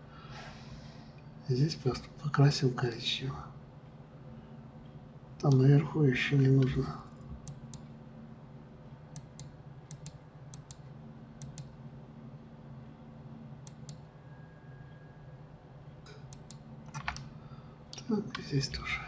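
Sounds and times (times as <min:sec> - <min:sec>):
low steady hum: 0:00.0 - 0:19.0
mouse and keyboard clicks: 0:16.1 - 0:17.3.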